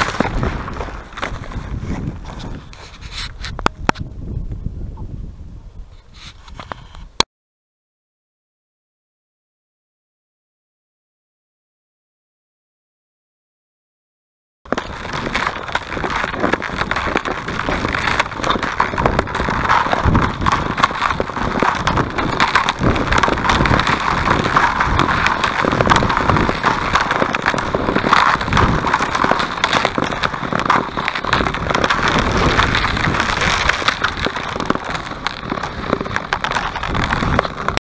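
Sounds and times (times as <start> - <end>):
lake ice crackling: 0.0 - 3.8, 14.7 - 37.8.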